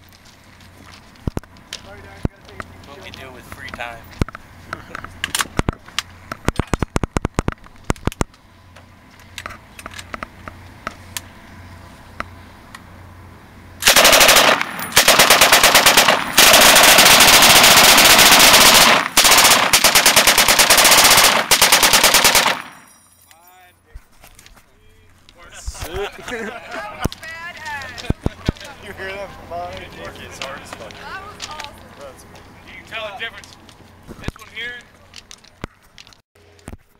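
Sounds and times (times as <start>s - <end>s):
scattered pops: 5.2s - 8.4s
single gunshots: 13.8s - 22.8s
machine guns automatic fire: 13.8s - 22.9s.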